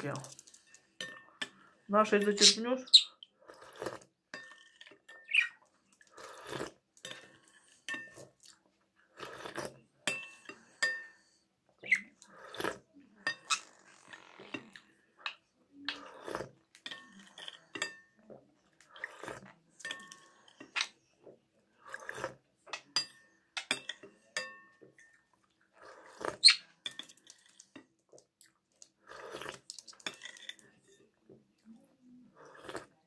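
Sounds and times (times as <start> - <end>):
soup being slurped: 3.2 - 5.1, 5.9 - 9.9, 11.9 - 17.7, 18.4 - 21.0, 21.7 - 22.5, 25.7 - 27.8, 28.8 - 31.1, 32.3 - 33.0
spoon clinking on ceramic bowl: 10.0 - 11.2, 16.8 - 18.2, 19.8 - 20.9, 22.7 - 25.2.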